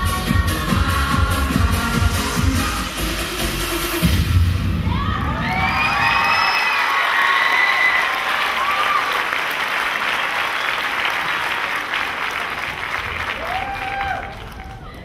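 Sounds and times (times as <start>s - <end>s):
high shouts: 4.8s - 9.2s
audience applauding: 5.5s - 15.0s.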